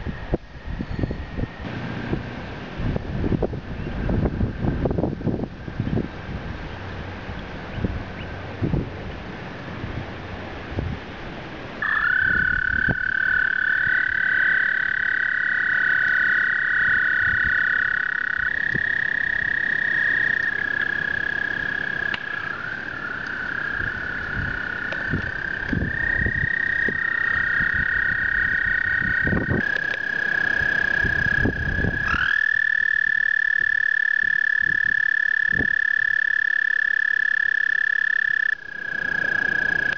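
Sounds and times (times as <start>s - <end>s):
toads trilling: 11.8s - 39.9s.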